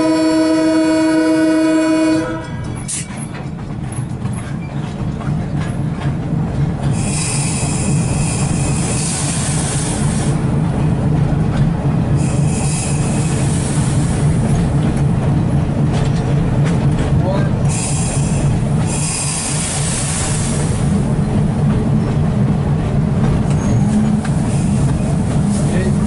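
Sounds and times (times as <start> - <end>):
diesel locomotive engine droning: 0.0 - 26.0
wheels squealing on rails: 2.4 - 5.1, 6.8 - 10.4, 12.1 - 14.7, 17.7 - 21.0, 23.3 - 26.0.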